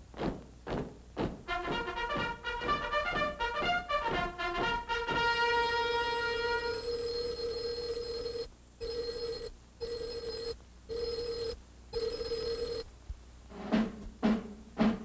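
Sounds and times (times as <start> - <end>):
telephone bell ringing: 6.0 - 12.9.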